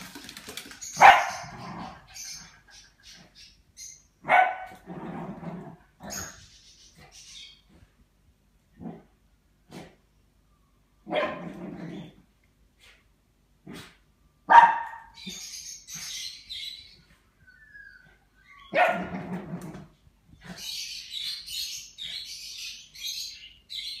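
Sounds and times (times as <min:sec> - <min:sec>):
small dog barking: 0:01.0 - 0:01.5, 0:04.2 - 0:04.8, 0:11.1 - 0:11.5, 0:14.5 - 0:15.2, 0:18.7 - 0:19.1.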